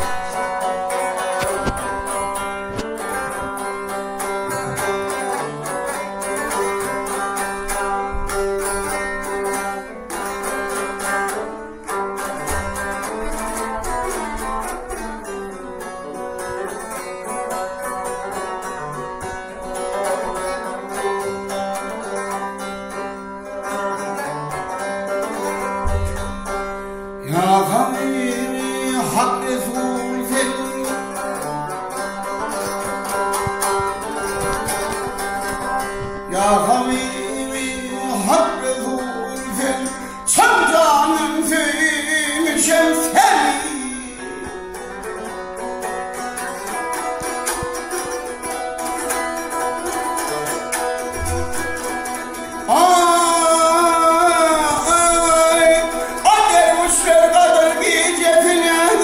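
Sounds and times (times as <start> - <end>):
man singing: 0.0 - 7.4, 27.2 - 33.2, 36.3 - 45.1, 52.6 - 59.0
long-necked lute strummed: 0.0 - 59.0.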